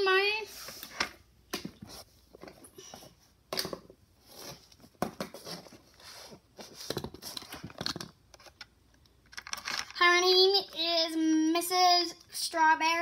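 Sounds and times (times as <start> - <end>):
plastic toys clicking and knocking: 7.0 - 10.0.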